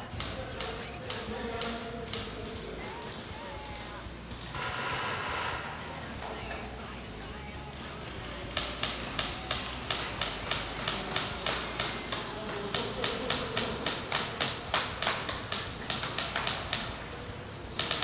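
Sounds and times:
airsoft gun shots in hall: 8.5 - 18.0.

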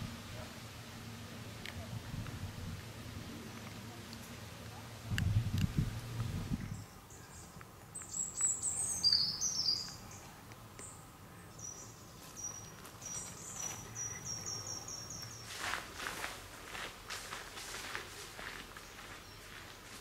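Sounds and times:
songbirds singing: 3.2 - 15.7, 18.6 - 20.0.

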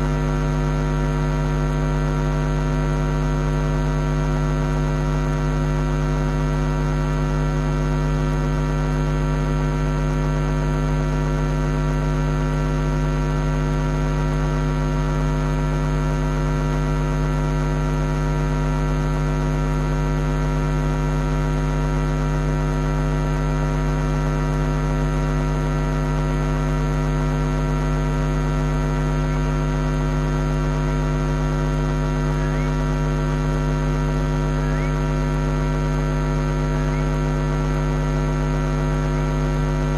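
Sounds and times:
electrical hum: 0.0 - 2.7, 27.6 - 39.9.

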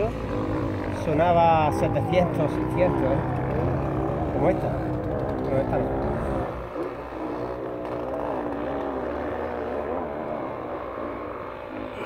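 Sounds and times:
motorcycle engine revving: 0.0 - 12.0.

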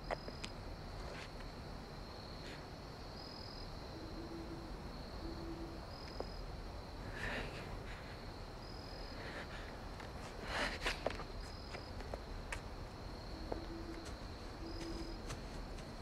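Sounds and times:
high insect drone: 0.0 - 16.0
leaves rustling underfoot: 0.9 - 1.5, 9.9 - 16.0
owl hooting: 4.0 - 6.3, 13.3 - 15.5.

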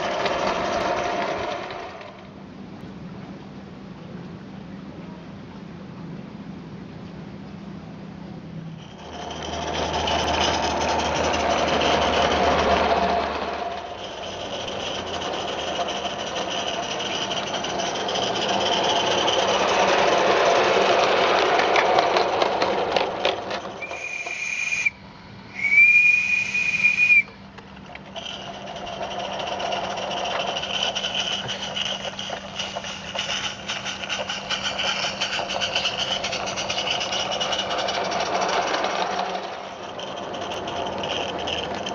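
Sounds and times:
steam locomotive chuffing: 0.0 - 2.4, 8.8 - 41.9
steam whistle blasts: 23.8 - 27.3.

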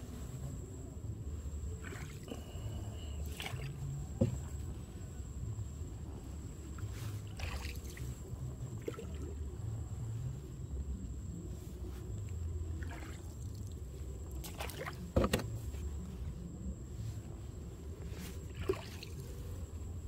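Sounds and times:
paddle swishing water: 6.6 - 9.2, 18.3 - 19.6.

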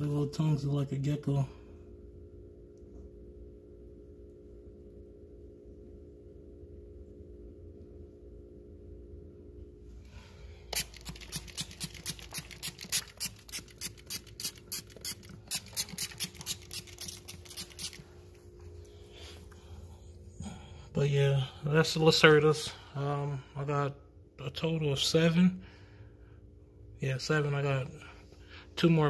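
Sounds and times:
spray bottle hissing squirts: 10.7 - 18.1.

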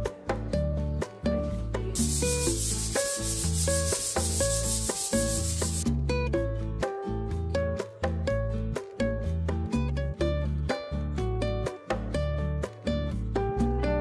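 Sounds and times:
background music: 0.0 - 14.0
sanding block scrubbing plaster: 2.0 - 5.8.

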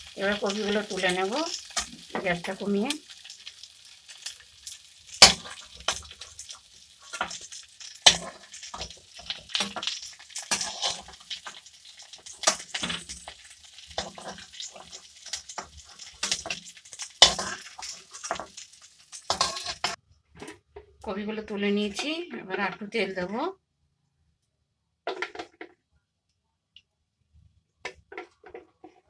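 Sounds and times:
oil sizzling: 0.0 - 20.0
metal spatula scraping a wok: 7.0 - 11.6, 12.2 - 20.0.

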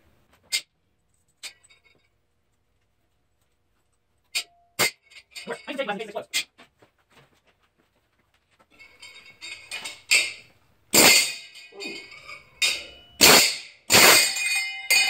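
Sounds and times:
light metal clinks: 4.4 - 6.4, 8.8 - 10.5, 11.1 - 15.0
air hammer rattling on metal: 8.8 - 15.0.

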